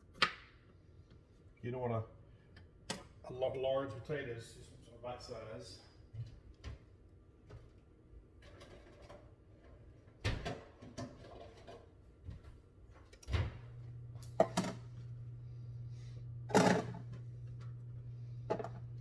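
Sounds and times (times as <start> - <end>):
low steady hum: 12.9 - 19.0.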